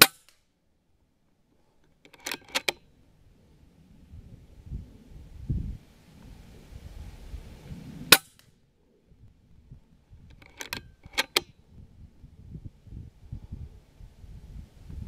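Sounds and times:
rifle shot: 0.0 - 0.3
sharp clicks: 1.8 - 2.8, 10.3 - 11.5.

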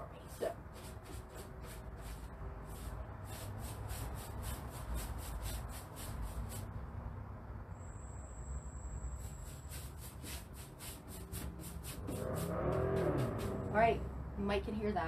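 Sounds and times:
paintbrush brushing on wood: 0.2 - 6.7, 9.2 - 13.8.

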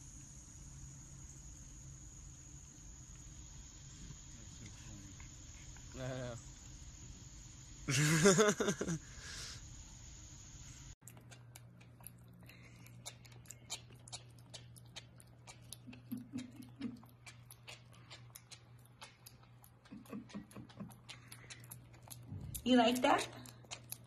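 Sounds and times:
piglet chewing: 11.0 - 24.0.

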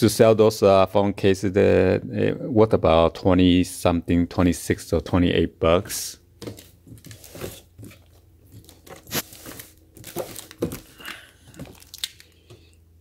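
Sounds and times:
plastic wrap crinkling: 6.6 - 12.8.

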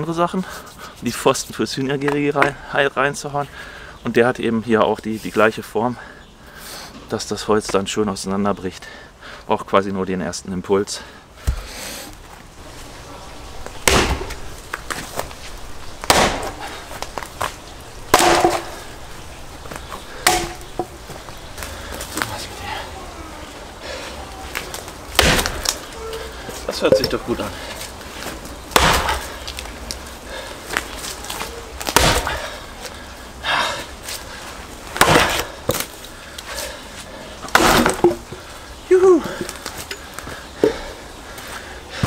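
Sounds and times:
wood cracking apart: 13.6 - 22.5, 24.5 - 26.0, 28.4 - 32.6, 37.4 - 38.4
maul striking wood: 13.8 - 15.0, 16.0 - 17.5, 18.1 - 18.9, 19.7 - 21.1, 25.1 - 25.8, 28.7 - 29.2, 31.8 - 32.4, 35.0 - 35.9, 37.5 - 38.4
splitting tool cracking wood: 13.8 - 15.0, 16.0 - 17.4, 18.1 - 18.8, 20.2 - 20.9, 24.6 - 25.9, 28.7 - 29.7, 31.8 - 32.4, 35.0 - 36.0, 37.5 - 38.3.

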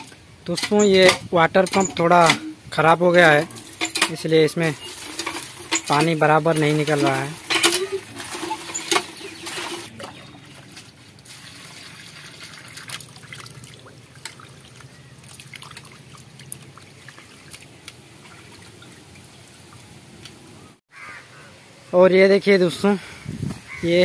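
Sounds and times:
hand pump working: 0.0 - 10.0
water sloshing and dripping: 0.0 - 20.5.

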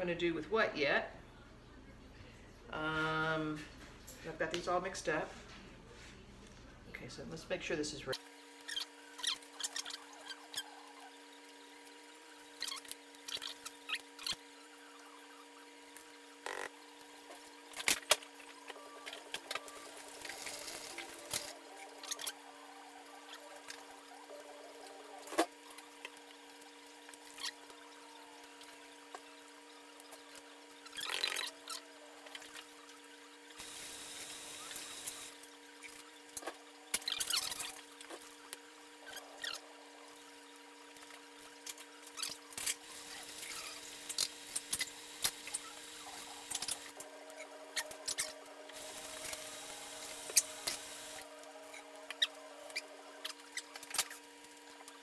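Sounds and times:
steady hum: 42.5 - 54.9.

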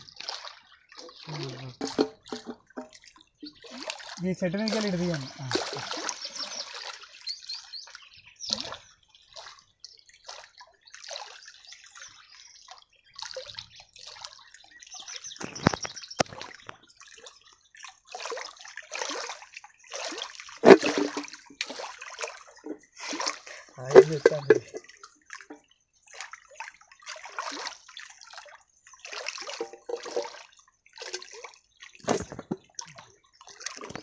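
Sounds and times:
water splashing and sloshing: 0.0 - 34.0
sharp knocks: 1.8 - 3.0.

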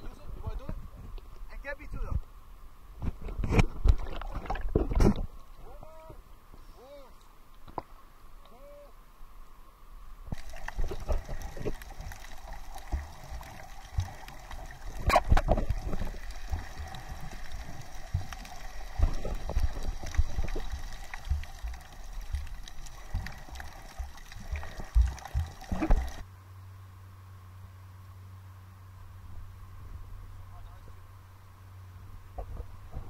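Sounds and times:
underwater water rushing and gurgling: 2.7 - 6.6, 9.9 - 26.3
low underwater knocks and thumps: 3.0 - 5.4, 10.3 - 26.2.

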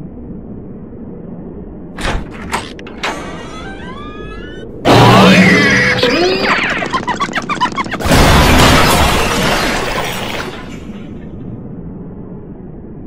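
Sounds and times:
loud shattering crash: 8.0 - 11.1.

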